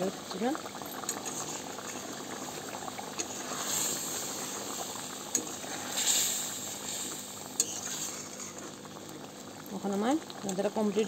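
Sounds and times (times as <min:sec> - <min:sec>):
curry bubbling: 0:00.0 - 0:11.0
metal spatula scraping pan: 0:05.4 - 0:08.7.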